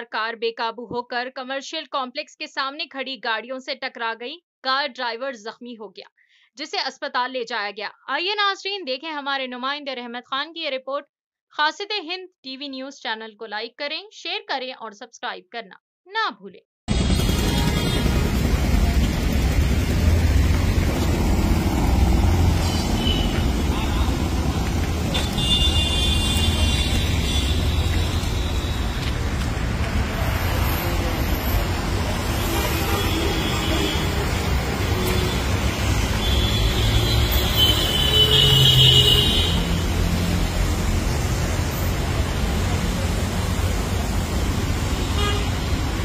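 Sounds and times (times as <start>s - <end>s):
traffic rumble: 16.9s - 46.0s.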